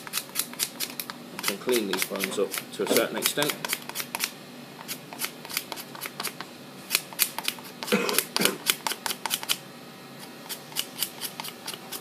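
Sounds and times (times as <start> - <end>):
knife scraping bones: 0.0 - 6.4, 10.2 - 12.0.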